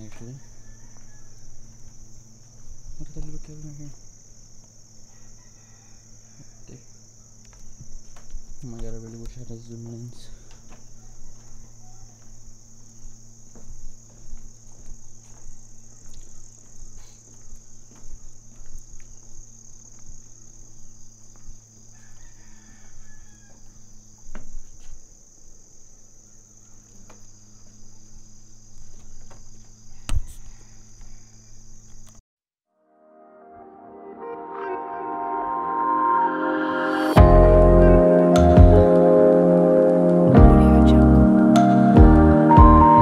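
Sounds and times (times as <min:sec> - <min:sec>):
insects chirring: 0:00.0 - 0:32.2.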